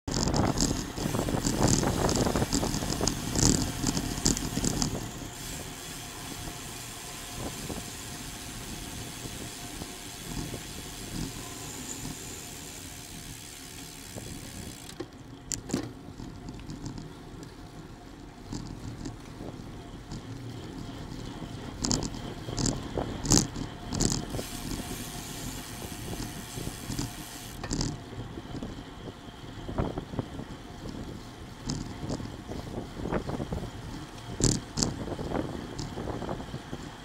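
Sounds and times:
bicycle tyre noise: 0:00.0 - 0:37.0
wind rushing over microphone: 0:00.1 - 0:05.8, 0:07.2 - 0:13.4, 0:28.3 - 0:37.0.

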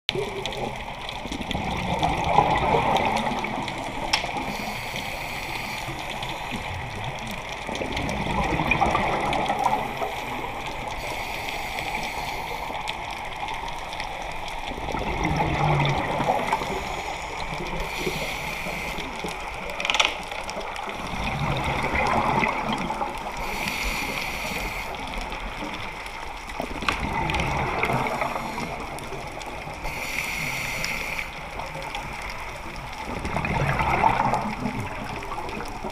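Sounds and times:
exhaled bubbles rushing: 0:00.1 - 0:04.6, 0:05.9 - 0:11.0, 0:13.2 - 0:19.6, 0:20.5 - 0:23.5, 0:24.9 - 0:29.8, 0:31.4 - 0:35.9
regulator inhale hiss: 0:04.3 - 0:06.8, 0:09.7 - 0:13.0, 0:16.2 - 0:19.6, 0:23.4 - 0:25.4, 0:28.0 - 0:31.5.

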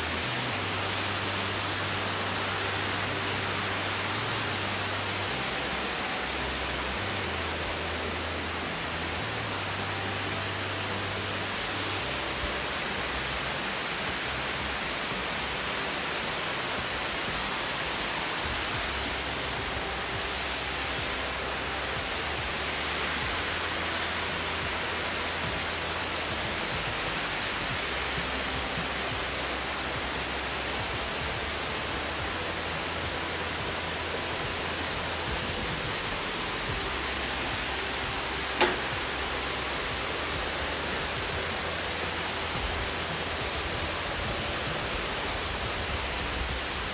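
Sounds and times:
waterfall rushing: 0:00.0 - 0:46.9
sharp click: 0:38.6 - 0:38.9.

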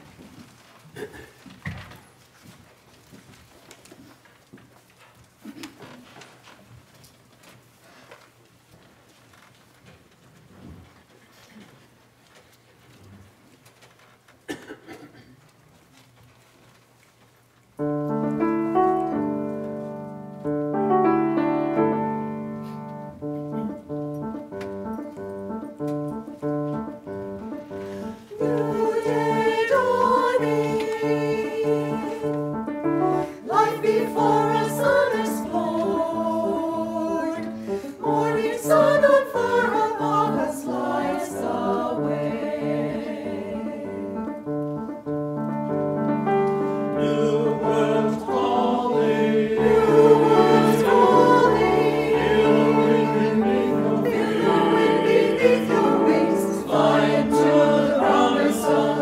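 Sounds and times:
piano accompaniment: 0:17.8 - 0:59.0
mixed choir singing: 0:28.0 - 0:44.3, 0:46.6 - 0:59.0.

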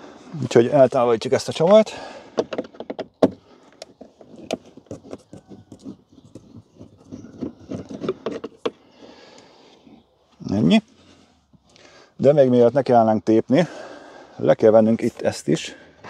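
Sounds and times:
screwdriver clicks and scrapes: 0:04.1 - 0:08.7.

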